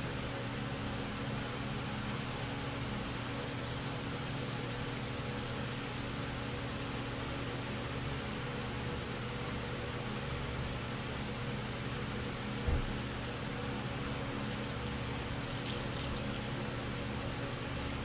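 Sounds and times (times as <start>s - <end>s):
steady hum and hiss: 0.0s - 18.0s
sanding block rubbing: 1.1s - 7.3s.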